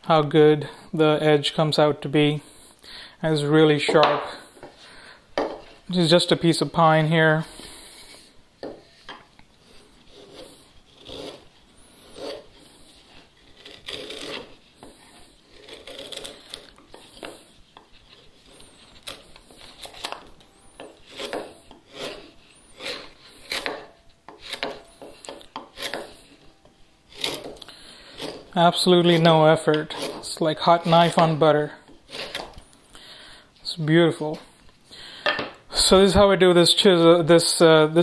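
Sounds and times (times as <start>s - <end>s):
chisel paring wood shavings: 7.8s - 26.5s, 27.1s - 32.7s.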